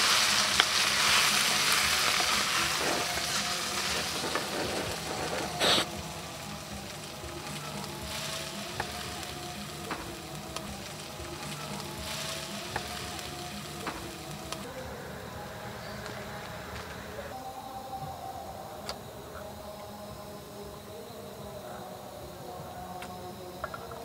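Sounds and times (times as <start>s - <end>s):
food sizzling in a frying pan: 0.0s - 14.7s.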